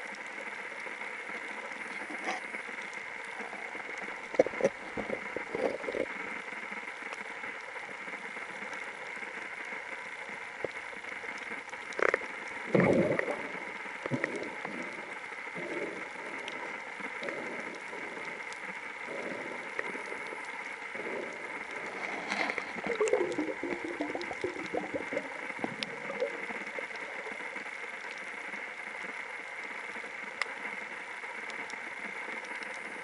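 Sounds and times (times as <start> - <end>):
underwater hiss: 0.2 - 33.0
gurgling bubbles: 1.8 - 6.9, 10.6 - 28.5.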